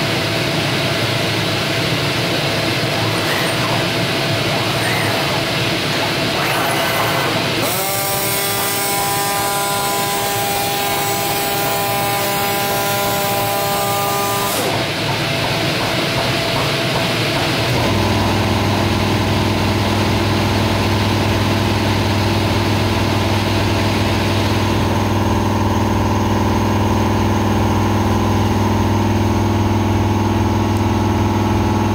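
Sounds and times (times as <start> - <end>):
steady low hum: 0.0 - 7.6
flatbed cutter whine: 0.1 - 31.9.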